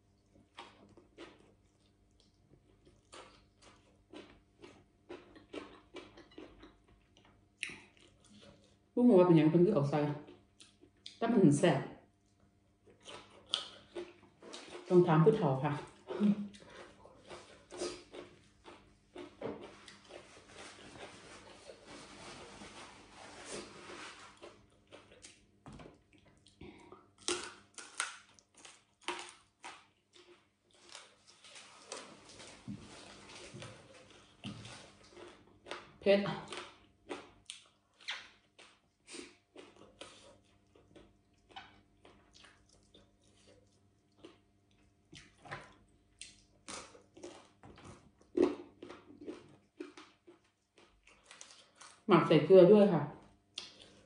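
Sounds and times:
faint chewing: 0:00.1 - 0:08.8, 0:10.1 - 0:11.2, 0:12.2 - 0:52.1, 0:53.5 - 0:54.0.

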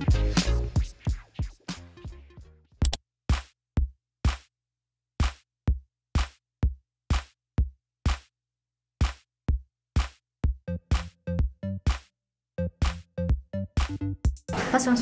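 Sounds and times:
electronic music drum hits: 0:12.8 - 0:14.8.

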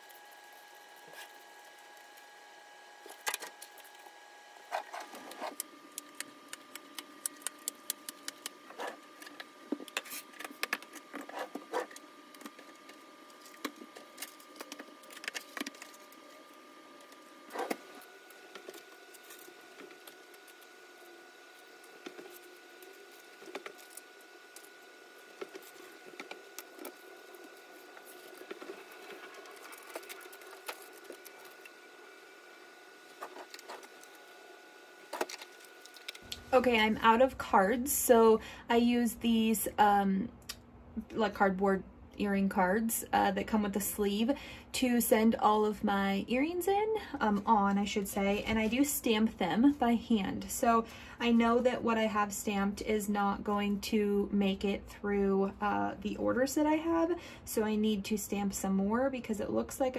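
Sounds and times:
cardboard cards being handled: 0:33.0 - 0:34.2.

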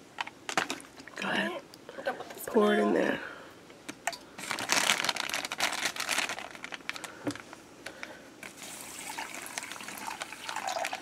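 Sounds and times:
plastic bag crinkling: 0:00.5 - 0:01.2, 0:04.4 - 0:11.0
water pouring into bag: 0:04.4 - 0:07.2, 0:08.4 - 0:11.0.

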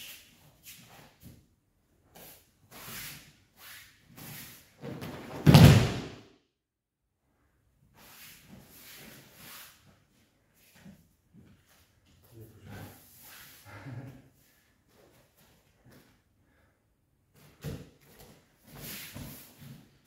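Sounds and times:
body slapping onto mat: 0:04.8 - 0:06.2.

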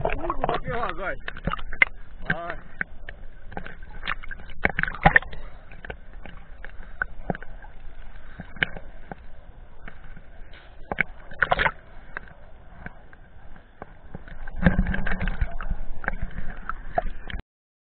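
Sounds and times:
sharp water splashes: 0:00.0 - 0:07.7, 0:09.8 - 0:12.9
small waves sloshing: 0:00.0 - 0:17.4.

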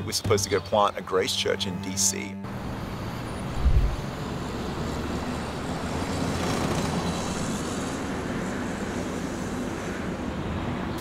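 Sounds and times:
city traffic roar: 0:00.0 - 0:11.0
short low thump: 0:03.6 - 0:04.0.

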